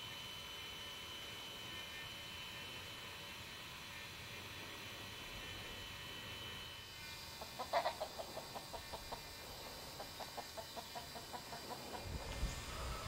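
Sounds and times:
rooster clucking: 0:07.4 - 0:12.2.

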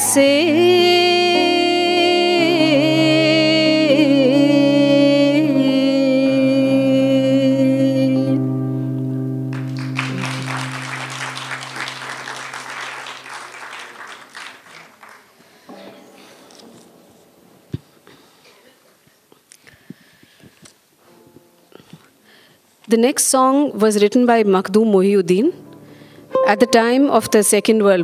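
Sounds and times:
woman singing with vibrato: 0:00.0 - 0:08.8, 0:26.4 - 0:28.0
acoustic guitar chords: 0:00.0 - 0:13.2, 0:25.5 - 0:28.0
audience applauding: 0:09.5 - 0:15.7.

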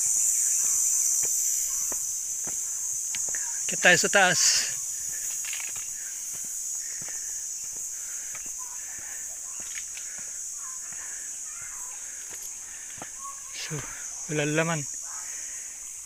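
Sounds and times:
steady high hiss: 0:00.0 - 0:16.0
footsteps on stone: 0:00.6 - 0:13.2
faint bird calls: 0:01.5 - 0:03.7, 0:04.4 - 0:16.0.

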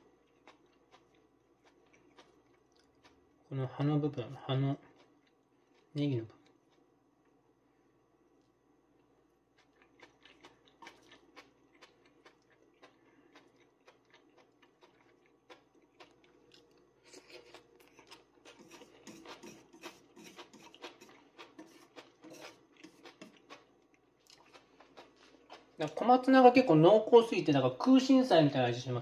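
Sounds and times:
chewing with wet crunches: 0:00.0 - 0:03.5, 0:09.0 - 0:26.0.

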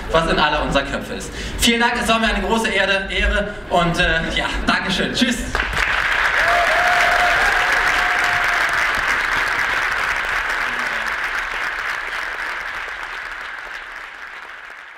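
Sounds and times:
audience applauding: 0:05.5 - 0:14.9.

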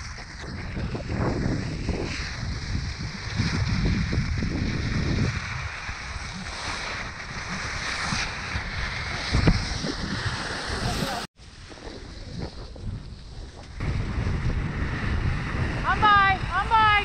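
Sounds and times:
skis hissing on snow: 0:00.0 - 0:12.6
wind buffeting microphone: 0:00.0 - 0:17.0.

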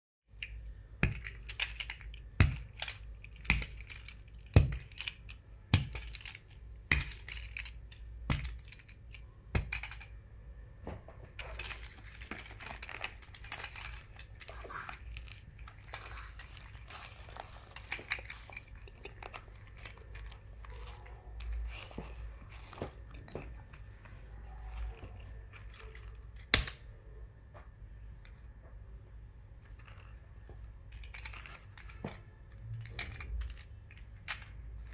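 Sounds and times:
plastic toy cars clicking: 0:00.4 - 0:10.2, 0:11.3 - 0:23.8, 0:24.5 - 0:26.8, 0:30.8 - 0:34.9.

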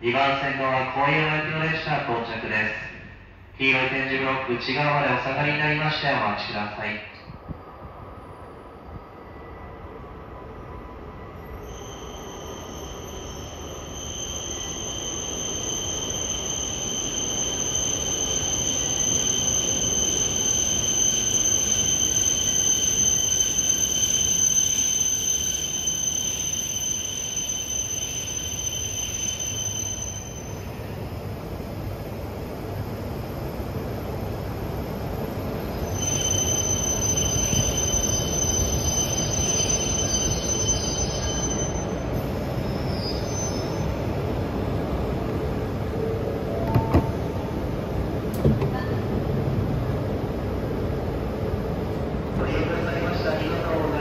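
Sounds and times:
high-pitched brake squeal: 0:10.7 - 0:30.8, 0:35.8 - 0:44.0.

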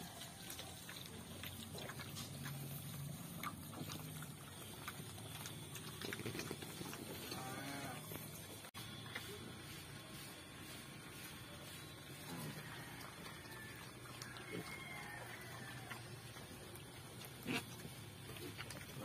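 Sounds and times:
chewing and rooting clicks: 0:00.0 - 0:07.5, 0:13.0 - 0:19.0
pigs grunting: 0:16.4 - 0:19.0.

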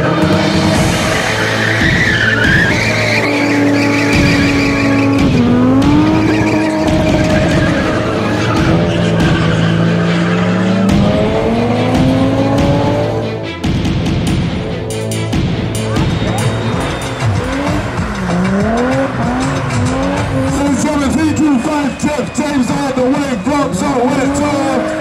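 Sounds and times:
tyres squealing on tarmac: 0:00.0 - 0:11.8, 0:15.8 - 0:25.0
car engine revving high: 0:00.0 - 0:13.6, 0:14.2 - 0:25.0.

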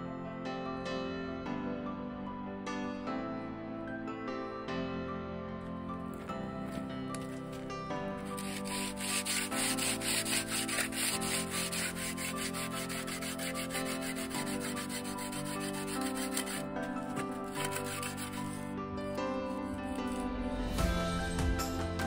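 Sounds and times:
background music: 0:00.0 - 0:22.0
hand tool scraping concrete: 0:06.2 - 0:20.3.

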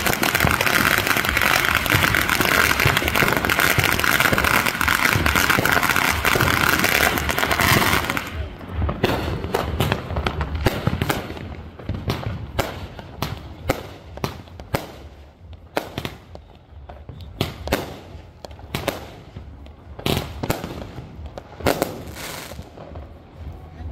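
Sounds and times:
fireworks bangs: 0:00.0 - 0:23.9.

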